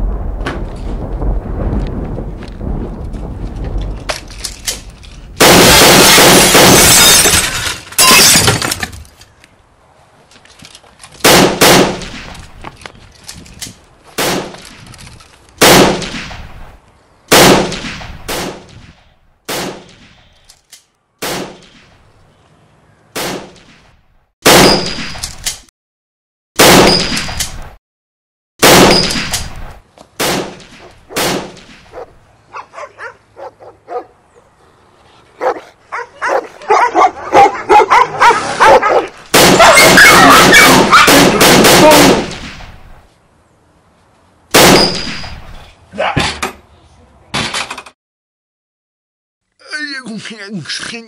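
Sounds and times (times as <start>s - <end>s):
gunshots: 5.4s - 7.3s, 11.2s - 12.4s, 14.2s - 14.6s, 15.6s - 16.5s, 17.3s - 18.9s, 19.5s - 20.1s, 21.2s - 21.9s, 23.2s - 23.7s, 24.4s - 25.2s, 26.6s - 27.6s, 28.6s - 31.9s, 39.3s - 42.8s, 44.6s - 45.4s
dogs barking: 31.9s - 34.2s, 35.4s - 41.4s.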